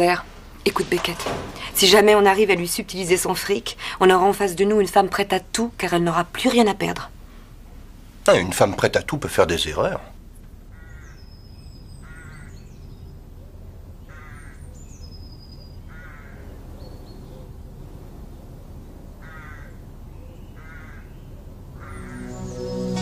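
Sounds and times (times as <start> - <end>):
low steady hum: 0.0 - 14.1
harsh cawing bird calls: 10.6 - 12.8, 14.0 - 14.8, 15.8 - 16.6, 19.2 - 23.0
music: 21.8 - 23.0.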